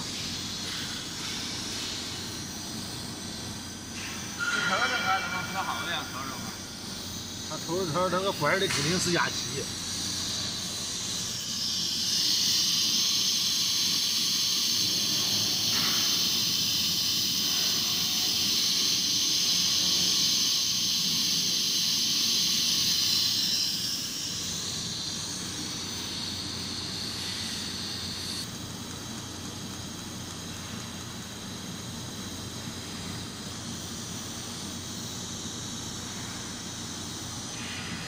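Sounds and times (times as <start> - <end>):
welding arc hiss: 0.0 - 38.0.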